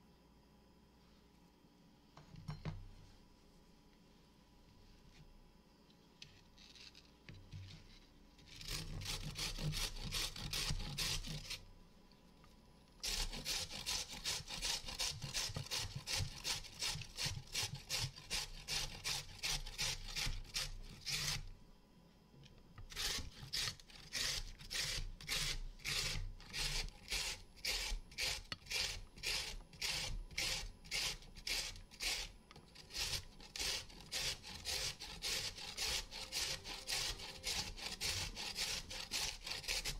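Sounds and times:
carrot grated on metal grater: 8.4 - 11.6, 13.0 - 21.5, 22.9 - 39.9.

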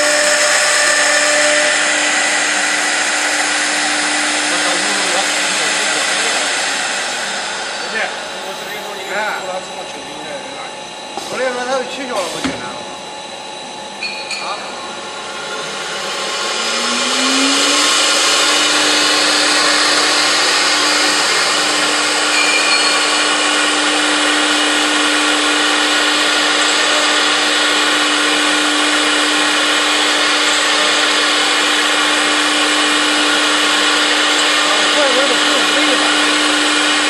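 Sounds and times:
router bit cutting wood: 0.0 - 12.8, 14.8 - 37.0
router spindle whine: 0.0 - 37.0.

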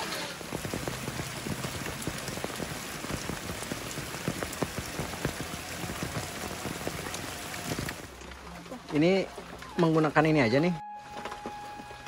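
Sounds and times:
rain drops on surface: 0.0 - 12.0.

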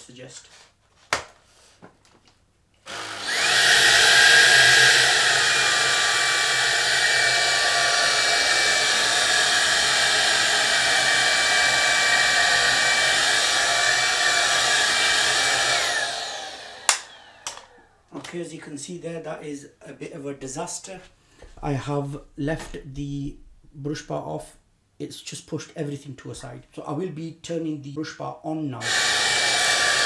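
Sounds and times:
vacuum cleaner motor whine: 2.9 - 18.0, 28.8 - 30.0.

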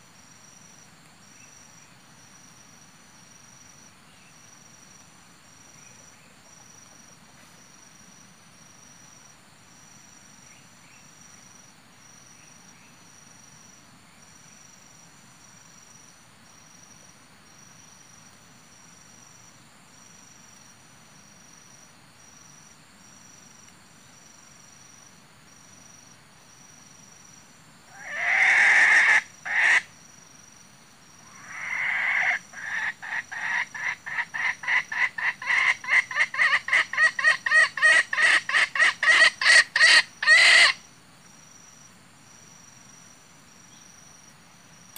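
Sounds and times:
junglefowl clucking: 27.9 - 29.9, 31.2 - 40.8
junglefowl crowing: 27.9 - 29.9, 31.2 - 40.8
insect trilling: 27.9 - 30.5, 31.1 - 40.9.

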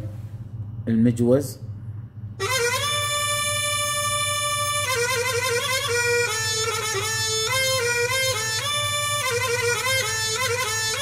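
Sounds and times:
keyboard reed pipe melody: 2.4 - 11.0.

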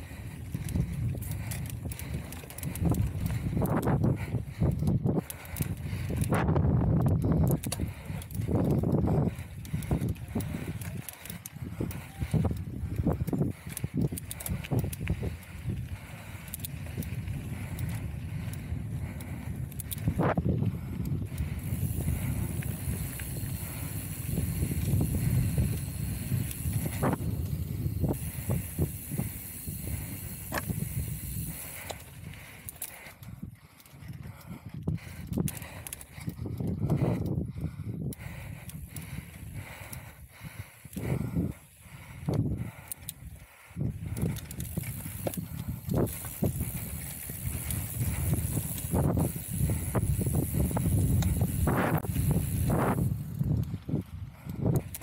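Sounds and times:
bike knocking and rattling: 0.0 - 55.0
bike rumble on rough trail: 0.0 - 55.0
wind on microphone: 0.0 - 55.0.

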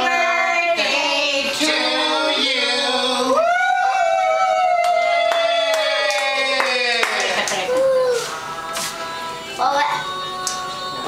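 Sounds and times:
group singing unaccompanied: 0.0 - 3.9.

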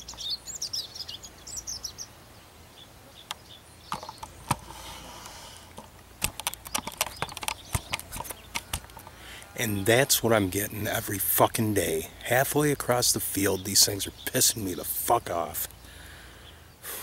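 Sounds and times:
songbirds chirping: 0.0 - 17.0
camera handling clicks and knocks: 3.9 - 4.7, 5.7 - 9.2.

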